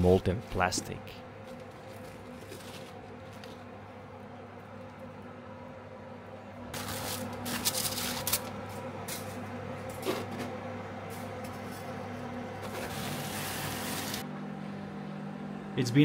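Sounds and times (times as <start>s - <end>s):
aluminium foil crinkling: 1.5s - 3.7s, 6.8s - 9.2s.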